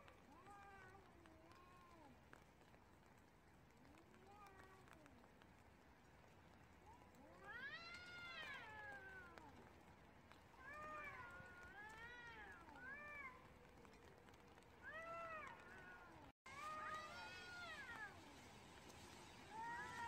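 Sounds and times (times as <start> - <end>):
cats yowling: 3.8 - 5.2, 6.8 - 9.8, 10.6 - 18.5, 19.5 - 20.0.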